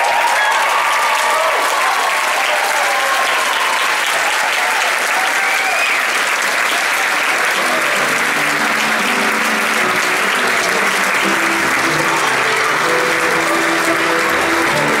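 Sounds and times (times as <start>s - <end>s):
audience applauding: 0.0s - 15.0s
band music: 7.5s - 15.0s.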